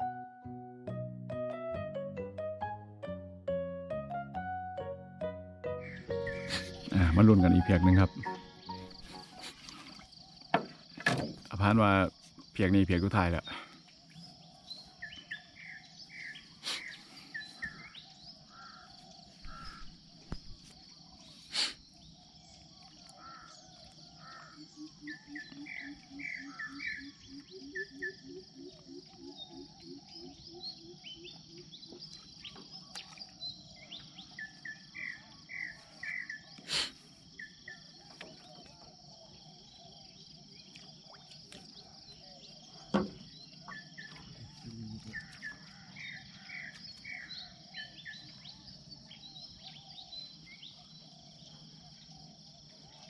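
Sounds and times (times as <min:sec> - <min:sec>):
birds chirping: 0:04.5 - 0:53.0
low pulsing call: 0:05.6 - 0:09.5
high insect drone: 0:05.8 - 0:53.0
sharp knocks: 0:42.9 - 0:43.3.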